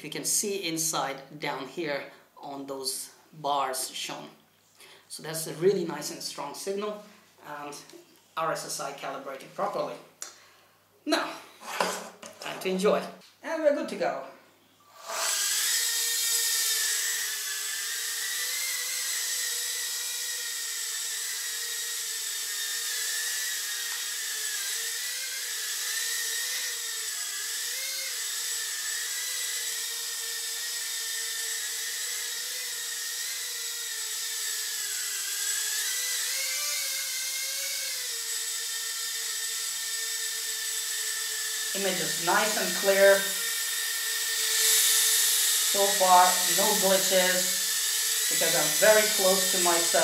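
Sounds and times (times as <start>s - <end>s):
quadcopter high-pitched whine: 14.8s - 50.0s.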